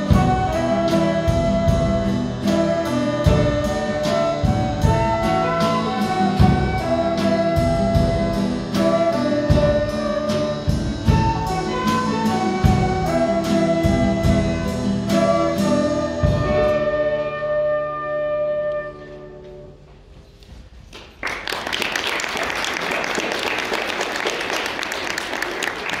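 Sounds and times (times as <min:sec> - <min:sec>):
drum and cymbal hits: 0:00.0 - 0:16.9
band with flutes and guitar: 0:00.0 - 0:20.4
audience applause: 0:21.0 - 0:26.0.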